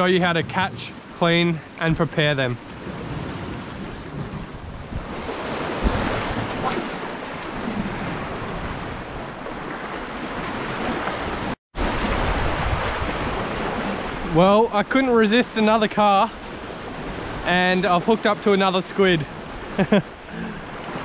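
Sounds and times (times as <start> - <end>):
waves breaking against rocks: 0.0 - 21.0
wind buffeting microphone: 1.8 - 14.3.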